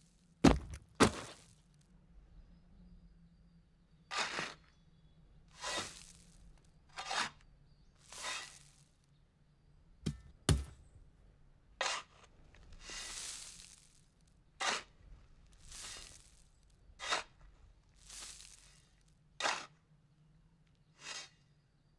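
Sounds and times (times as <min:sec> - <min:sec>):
shovel cutting into soil: 0:00.5 - 0:01.4, 0:04.1 - 0:04.6, 0:05.6 - 0:06.2, 0:07.0 - 0:07.4, 0:08.1 - 0:08.8, 0:11.8 - 0:13.9, 0:14.6 - 0:14.9, 0:15.6 - 0:16.4, 0:17.0 - 0:17.4, 0:18.0 - 0:19.8, 0:21.0 - 0:21.4
sharp knocks: 0:10.1 - 0:10.8.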